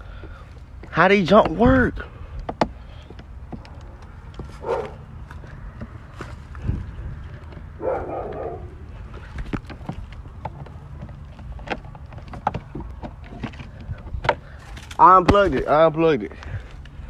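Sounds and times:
footsteps: 0:00.0 - 0:15.8
wind rumble on microphone: 0:01.5 - 0:02.7, 0:03.4 - 0:10.4, 0:12.8 - 0:14.6.

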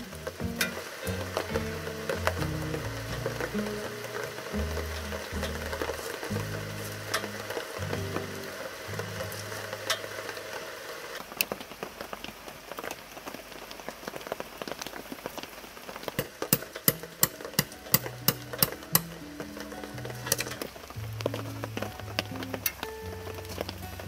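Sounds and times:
steady rain falling: 0:00.0 - 0:24.0
tent peg hammered into gravel: 0:16.2 - 0:19.2.

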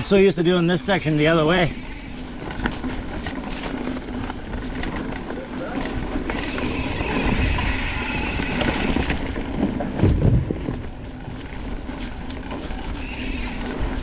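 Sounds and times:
bike tyres on dirt trail: 0:00.0 - 0:14.0
heavy low thump: 0:09.6 - 0:10.8.

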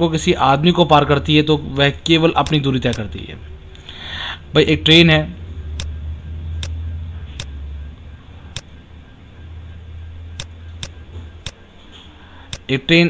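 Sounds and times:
low electrical hum: 0:00.0 - 0:13.0
sharp clicks: 0:02.4 - 0:03.1, 0:05.8 - 0:06.0, 0:06.6 - 0:06.8, 0:07.4 - 0:07.6, 0:10.4 - 0:11.6, 0:12.5 - 0:12.7.

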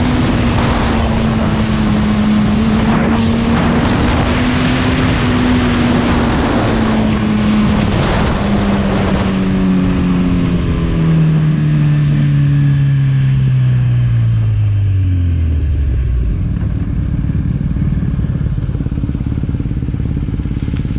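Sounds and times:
wind noise on microphone: 0:00.0 - 0:12.9
motorcycle engine revs falling: 0:00.0 - 0:14.2.

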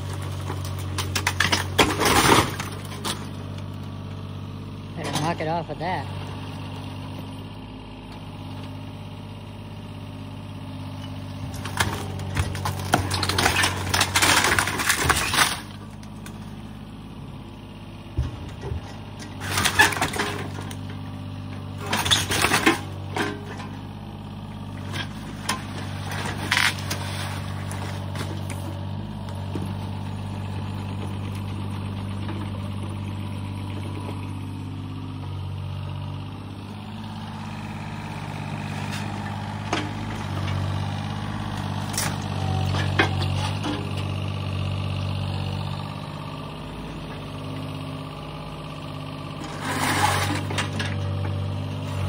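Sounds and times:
boards and shingles crashing down: 0:00.0 - 0:03.2, 0:11.6 - 0:15.7
diesel engine running: 0:00.0 - 0:52.0.

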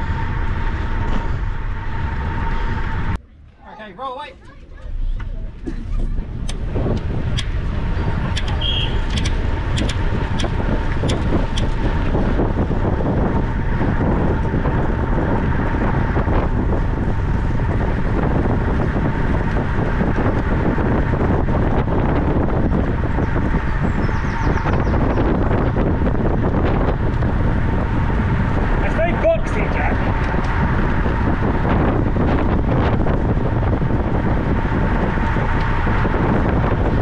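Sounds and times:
wind rushing over microphone: 0:00.0 - 0:03.5, 0:04.2 - 0:37.0
steady thin whine: 0:00.0 - 0:04.2
sharp clicks: 0:08.3 - 0:11.8.

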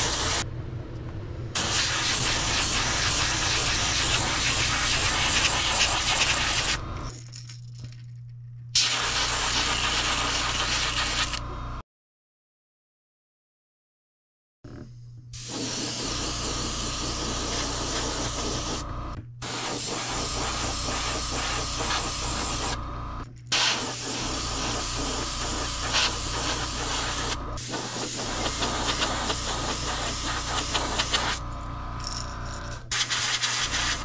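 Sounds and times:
airbrush spraying hiss: 0:01.6 - 0:06.8, 0:15.4 - 0:18.8, 0:19.4 - 0:22.8, 0:23.6 - 0:31.4, 0:32.9 - 0:34.0
low steady hum: 0:06.8 - 0:08.8.

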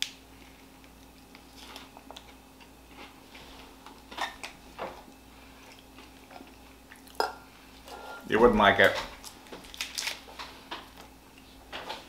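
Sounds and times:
candy wrapper rustling: 0:08.8 - 0:10.4
wrapper crackles: 0:09.2 - 0:10.3.

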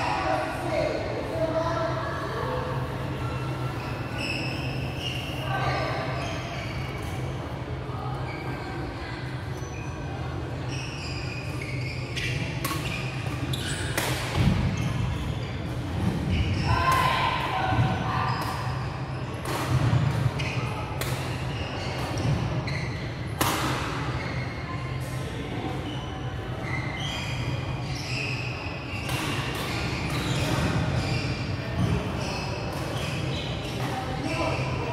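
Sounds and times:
hum and murmur of large hall: 0:00.0 - 0:34.9
shoe squeaks on floor: 0:03.4 - 0:07.3, 0:09.5 - 0:17.2, 0:18.1 - 0:23.3, 0:25.8 - 0:34.9
racket hitting shuttlecock: 0:12.6 - 0:12.9, 0:13.9 - 0:14.7, 0:23.4 - 0:24.0.

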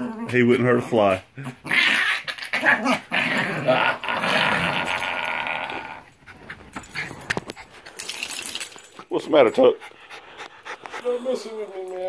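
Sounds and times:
small dog growling in play: 0:00.0 - 0:06.2.

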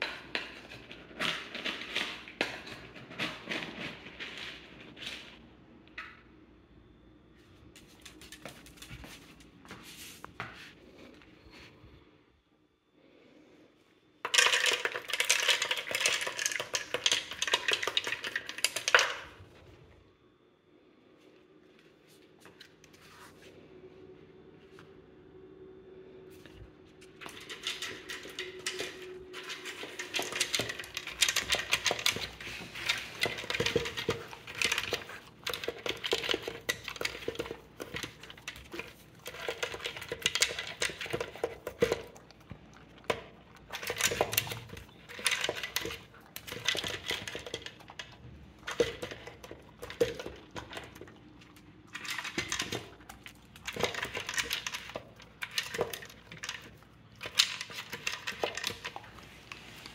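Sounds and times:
food rattling in plastic bowl: 0:00.0 - 0:05.4, 0:14.3 - 0:19.4, 0:27.1 - 0:42.1, 0:43.1 - 0:51.2, 0:51.9 - 0:59.2.

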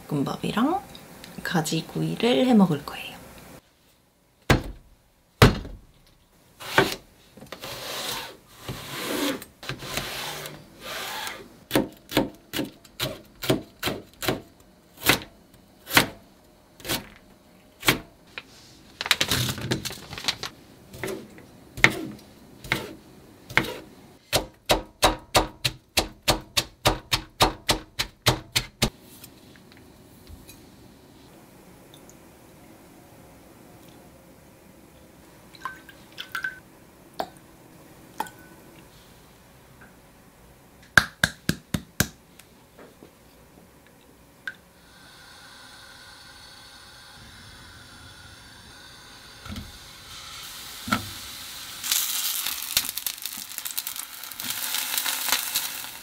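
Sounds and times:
knife scraping board: 0:06.6 - 0:10.6, 0:21.0 - 0:23.9
knife chopping on plastic board: 0:21.8 - 0:28.9.

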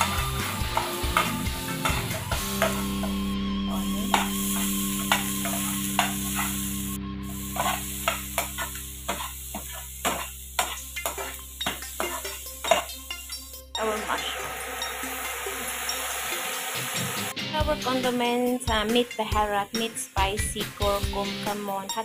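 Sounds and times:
metal spatula scraping a pan: 0:00.0 - 0:03.0, 0:03.7 - 0:13.4
onion and garlic sizzling in oil: 0:00.0 - 0:17.3.

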